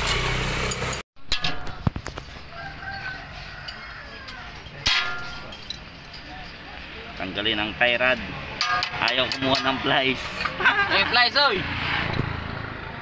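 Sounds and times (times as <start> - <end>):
rooster crowing: 2.3 - 4.6.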